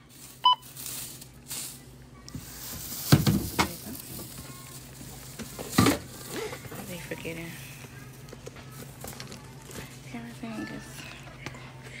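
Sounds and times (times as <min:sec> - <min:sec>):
plastic bags rustling: 0:00.0 - 0:11.9
barcode scanner beep: 0:00.4 - 0:00.7
items knocking: 0:02.4 - 0:04.5, 0:05.1 - 0:07.0.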